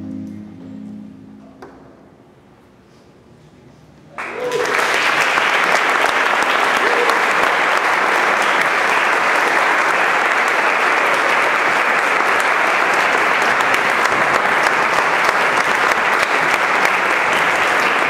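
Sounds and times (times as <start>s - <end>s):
audience applauding: 4.2s - 18.0s.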